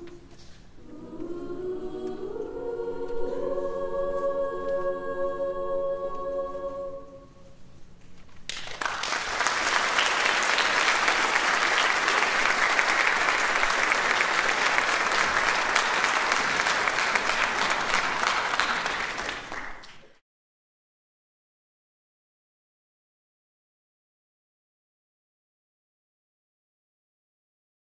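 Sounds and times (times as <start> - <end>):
choir holding a chord: 0.8 - 7.6
audience applause: 8.5 - 20.2.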